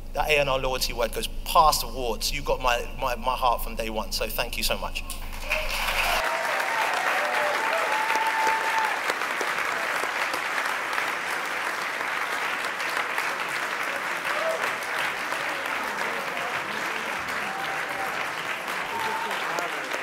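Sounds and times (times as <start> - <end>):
audience applauding: 5.3 - 20.0.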